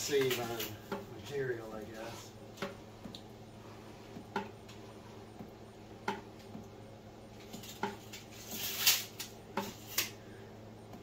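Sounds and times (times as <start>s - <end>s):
steady low hum: 0.0s - 11.0s
scraping rustle: 7.4s - 10.2s.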